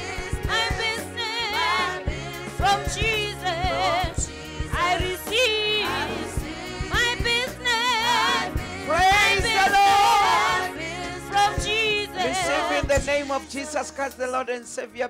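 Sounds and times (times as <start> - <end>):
voices singing gospel: 0.0 - 14.8
instrumental backing with bass: 0.0 - 15.0.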